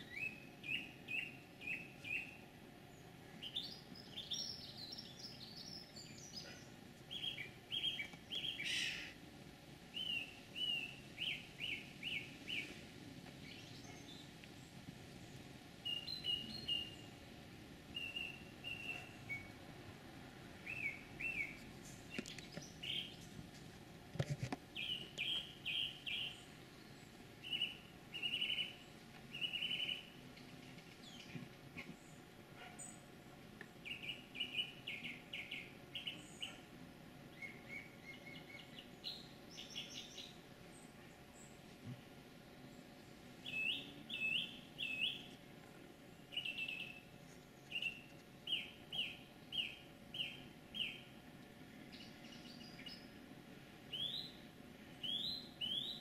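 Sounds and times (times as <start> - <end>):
songbird chirping: 0.0 - 9.2, 9.9 - 23.4, 24.7 - 56.0
bird warbling: 6.3 - 9.2.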